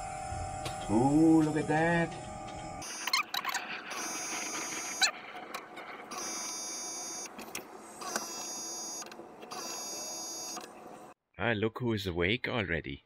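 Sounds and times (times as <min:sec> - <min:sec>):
small electric motor whining: 0:00.0 - 0:10.7
motor clicks: 0:00.6 - 0:11.1.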